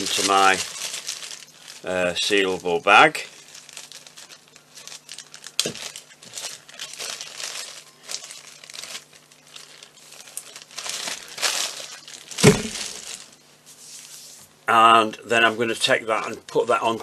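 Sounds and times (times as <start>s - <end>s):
plastic bag crinkling: 0.0s - 13.4s
sharp thump: 12.4s - 12.8s.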